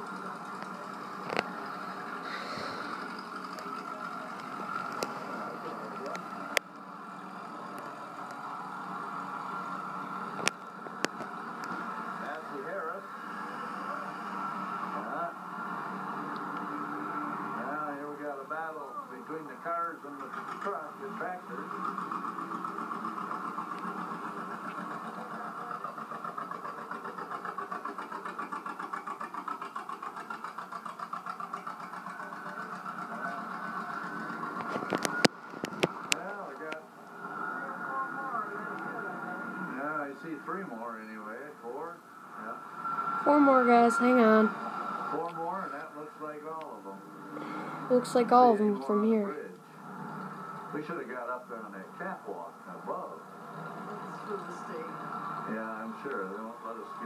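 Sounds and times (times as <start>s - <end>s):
tractor engines droning: 0.0s - 57.0s.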